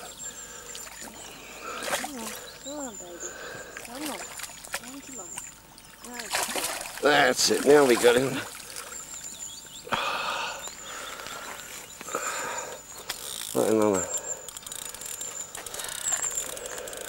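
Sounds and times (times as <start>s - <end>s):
ratcheting clicks of fishing tackle: 13.0s - 17.0s.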